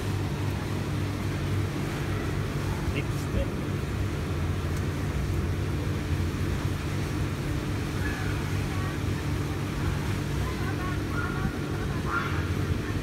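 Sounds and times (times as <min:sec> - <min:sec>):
low motor hum: 0:00.0 - 0:13.0
faint distant voices: 0:07.8 - 0:13.0.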